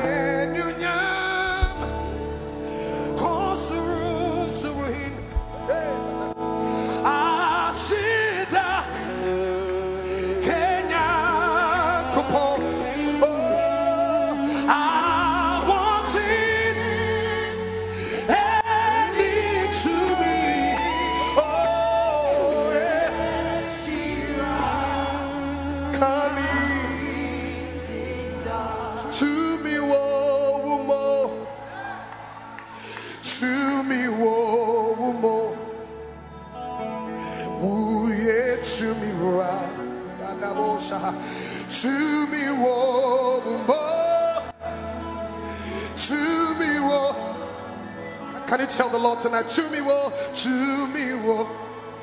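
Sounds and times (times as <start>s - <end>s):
bass line: 0.0s - 30.3s
person singing with vibrato: 0.0s - 52.0s.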